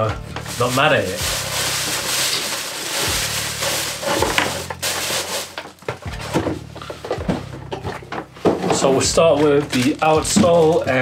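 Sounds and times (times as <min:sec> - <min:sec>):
tissue paper rustling: 0:00.3 - 0:06.4
handling noises: 0:00.3 - 0:11.0.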